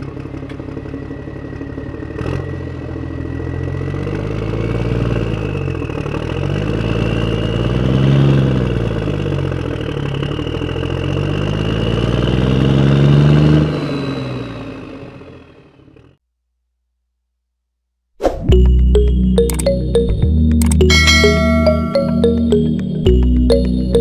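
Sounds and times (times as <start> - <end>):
tractor engine running: 0.0 - 12.2.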